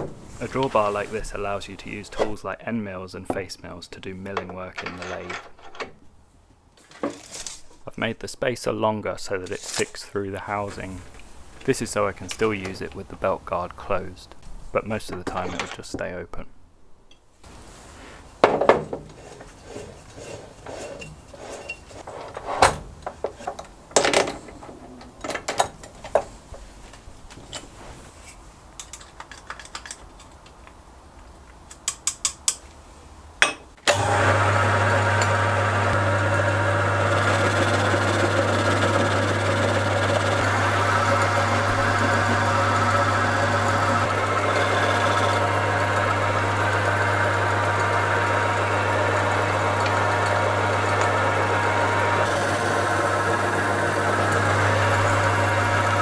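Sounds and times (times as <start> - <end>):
lathe motor humming: 33.9 - 56.0.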